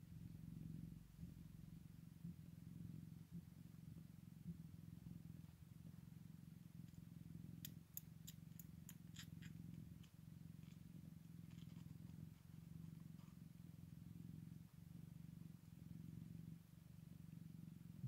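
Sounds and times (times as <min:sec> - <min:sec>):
cat purring: 0:00.0 - 0:18.0
faint clicks: 0:07.6 - 0:13.4.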